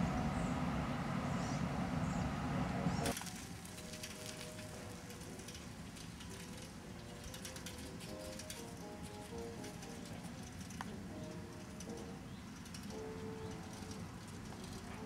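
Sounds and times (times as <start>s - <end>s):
train rumble: 0.0s - 15.0s
faint clicking and crackling: 3.0s - 15.0s.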